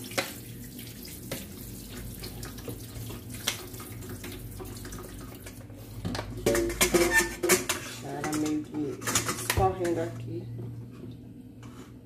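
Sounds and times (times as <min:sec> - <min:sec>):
liquid trickling into steel sink: 0:00.0 - 0:07.4.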